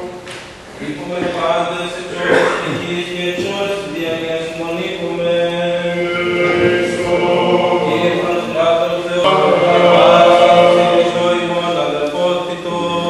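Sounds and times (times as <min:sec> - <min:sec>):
voices chanting slow melody: 0:01.9 - 0:13.0
held low drone note: 0:06.0 - 0:08.6.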